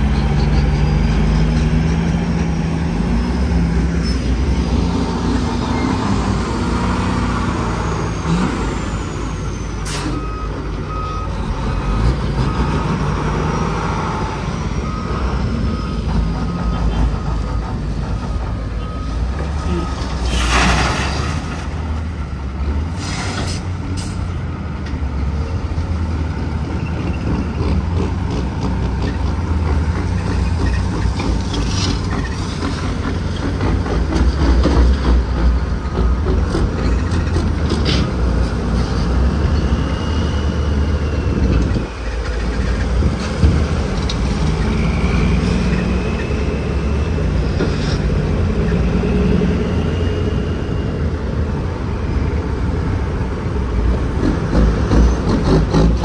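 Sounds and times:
diesel truck engine droning: 0.0s - 56.0s.

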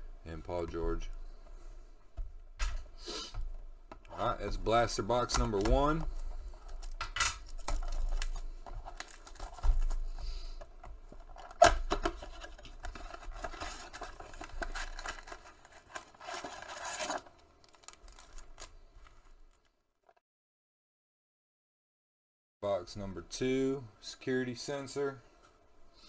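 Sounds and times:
packs sliding out rustling: 11.3s - 19.6s
cardboard box being opened: 11.4s - 18.4s.

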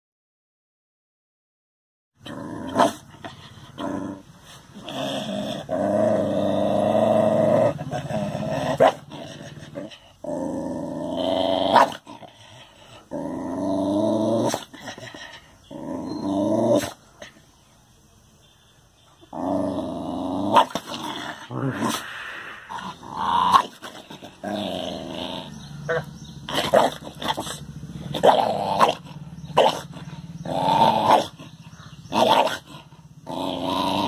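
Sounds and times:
dog growling: 2.2s - 17.4s, 19.2s - 34.0s
dog barking: 8.8s - 9.1s, 28.2s - 29.9s, 31.1s - 31.4s.

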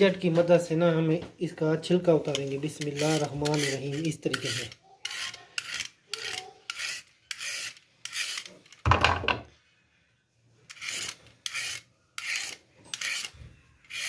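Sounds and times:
peeler scraping carrot skin: 2.2s - 8.8s, 10.6s - 14.0s
knock: 8.9s - 9.5s.

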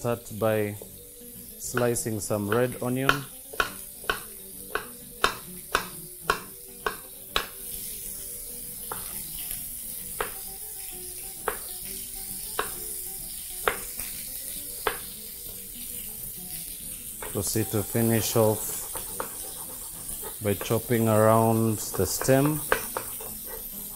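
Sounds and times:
food frying sizzle: 0.0s - 23.9s
knife tapping on cutting board: 1.7s - 7.6s, 8.9s - 9.1s, 10.2s - 10.4s, 11.4s - 11.7s, 12.5s - 12.8s, 13.6s - 14.0s, 14.8s - 15.2s, 18.8s - 21.0s, 21.8s - 23.6s.

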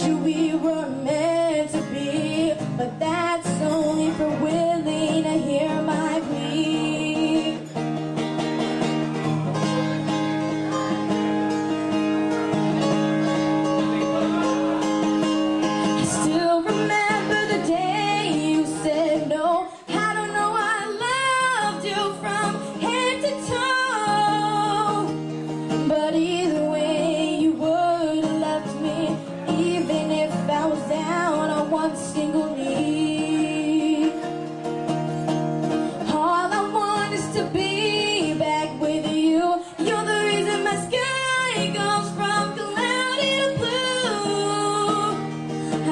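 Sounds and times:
woman singing into a microphone: 0.0s - 7.8s, 15.7s - 34.5s, 35.8s - 45.9s
acoustic guitar: 0.0s - 45.9s.

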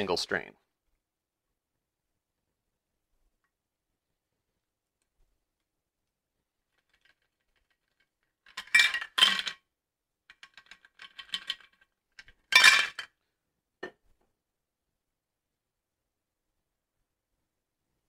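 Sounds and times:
ice rattling in cocktail shaker: 6.8s - 9.6s, 10.4s - 13.1s.

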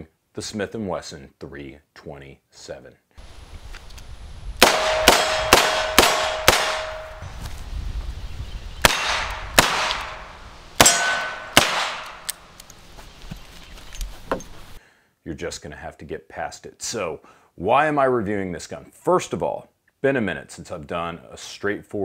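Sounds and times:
revolver gunshots: 4.6s - 7.2s, 8.8s - 12.4s.

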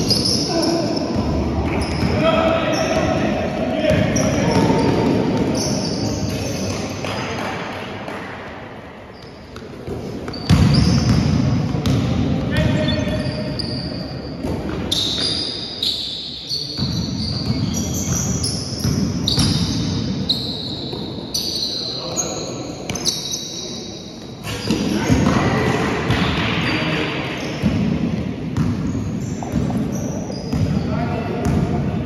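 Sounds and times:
sneakers squeaking on court: 0.0s - 7.2s, 9.1s - 25.4s, 28.6s - 31.8s
basketball bouncing: 9.9s - 12.7s.

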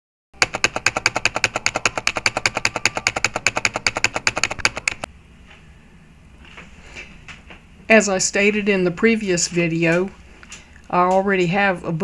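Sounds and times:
keyboard typing: 0.4s - 5.1s.

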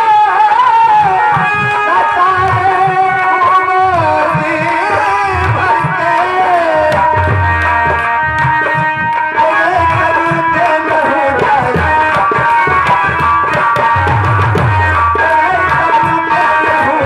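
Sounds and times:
hand drum rhythm: 0.7s - 17.0s.

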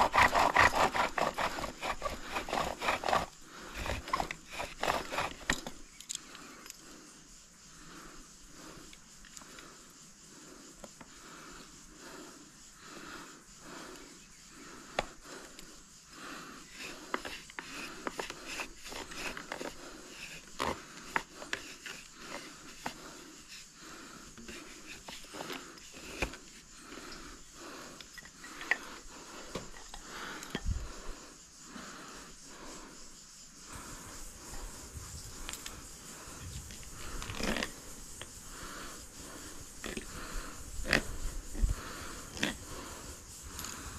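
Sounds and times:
bow drill spindle rasping: 0.0s - 5.8s, 16.6s - 23.7s, 24.3s - 27.2s.

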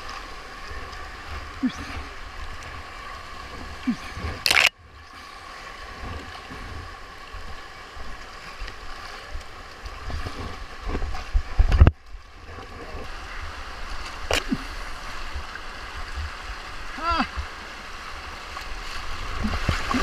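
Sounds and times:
whitewater river rushing: 0.0s - 4.7s, 13.0s - 20.0s
loud water splash: 4.4s - 4.7s.

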